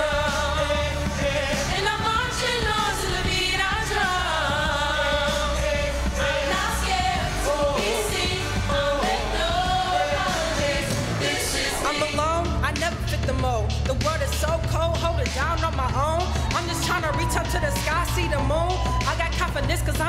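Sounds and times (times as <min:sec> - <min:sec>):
vocal group singing: 0:00.0 - 0:13.0
musical accompaniment with bass: 0:00.0 - 0:20.0.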